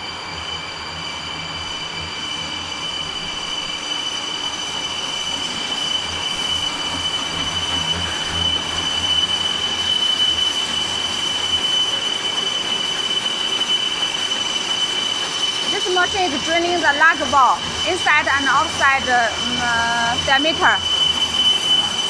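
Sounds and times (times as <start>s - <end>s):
lathe low hum: 0.0s - 22.0s
cutting tool squealing on metal: 0.1s - 22.0s.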